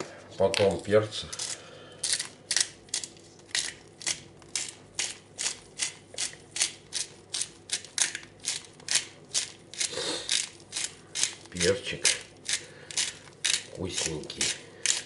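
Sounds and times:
pepper mill grinding: 0.4s - 15.0s.

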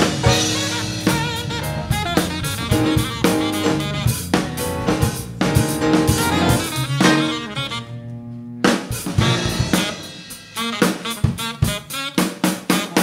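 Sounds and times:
snare and bass drum hits: 0.0s - 7.6s, 8.7s - 13.0s
funk band playing: 0.0s - 13.0s.

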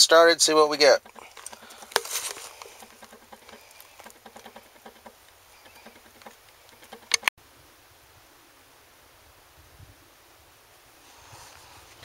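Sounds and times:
handling clicks and rustles: 0.0s - 7.3s.

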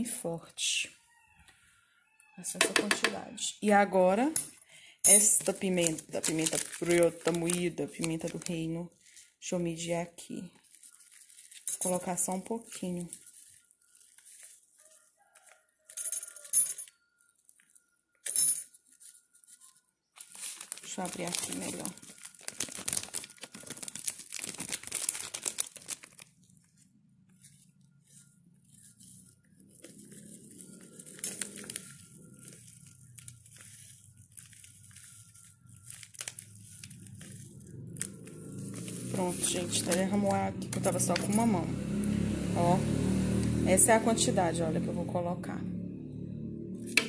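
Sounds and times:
plastic packet crinkling: 5.1s - 9.3s, 10.5s - 15.6s, 18.7s - 40.4s.

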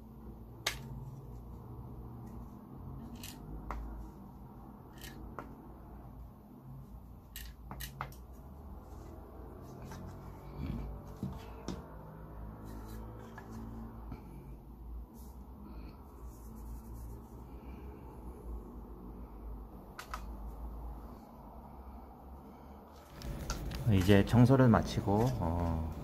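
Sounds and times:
plastic parts clicking and knocking: 7.3s - 8.2s.

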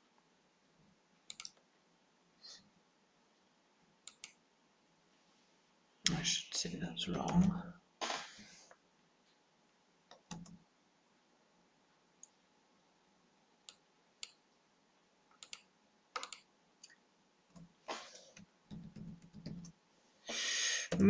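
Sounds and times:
keyboard and mouse clicks: 1.3s - 1.6s, 4.1s - 4.4s, 10.1s - 10.6s, 15.3s - 19.7s.

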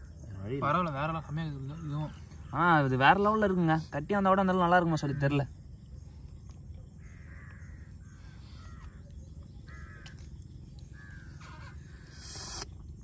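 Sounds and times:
crows cawing: 7.0s - 12.2s
loud rush of hiss: 12.1s - 12.7s.

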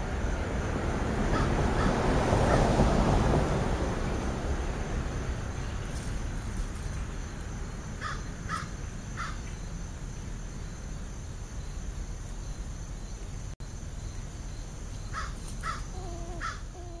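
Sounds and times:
crow cawing: 8.0s - 9.4s, 15.2s - 16.6s.

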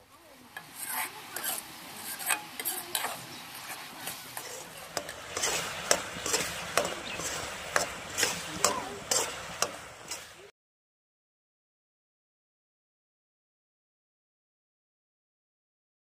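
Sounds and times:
berries sizzling in oil: 0.0s - 10.5s
spoon scraping metal pan: 0.5s - 10.5s.

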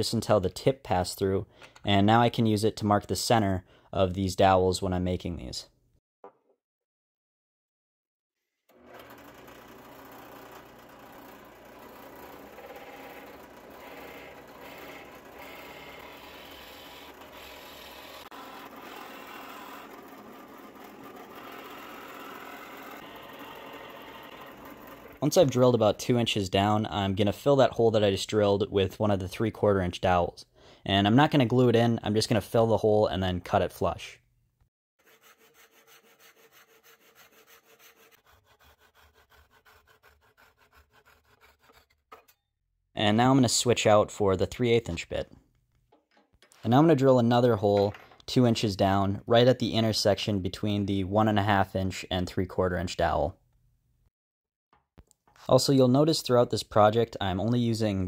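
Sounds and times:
handsaw cutting wood: 8.7s - 25.3s, 35.0s - 42.1s
drill press boring wood: 8.7s - 25.4s.

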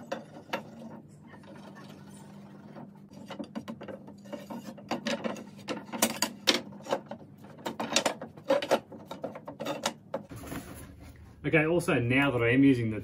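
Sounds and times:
wood scraping on wood: 2.3s - 11.2s.

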